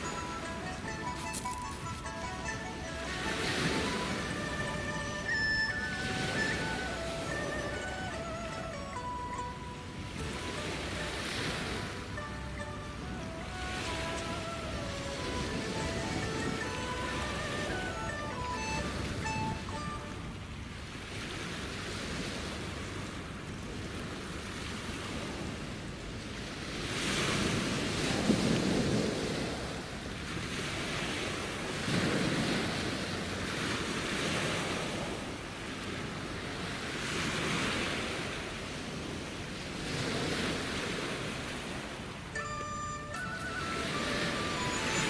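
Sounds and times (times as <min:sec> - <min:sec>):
waves washing over shingle: 0:00.0 - 0:09.0, 0:10.1 - 0:20.0, 0:26.4 - 0:42.4.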